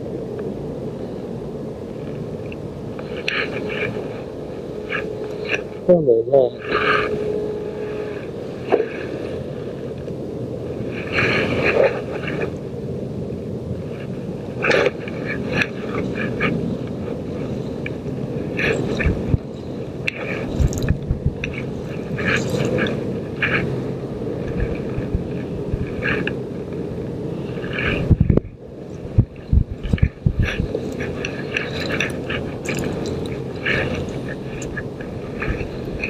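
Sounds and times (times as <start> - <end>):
wind rumbling on microphone: 0.0 - 36.0
scraping and handling knocks: 29.0 - 36.0.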